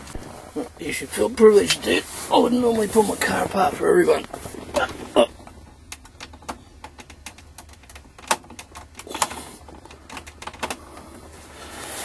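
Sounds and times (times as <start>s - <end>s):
plastic parts clicking and knocking: 4.8s - 11.0s.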